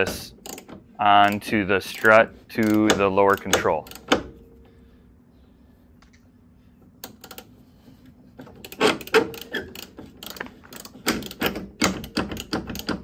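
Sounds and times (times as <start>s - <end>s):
socket ratchet clicking: 0.4s - 1.4s, 2.0s - 4.3s, 8.6s - 13.0s.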